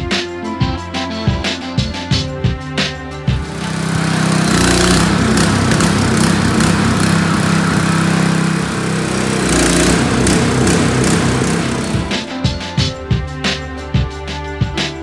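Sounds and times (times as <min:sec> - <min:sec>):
hydraulic power unit running: 0:03.4 - 0:12.3.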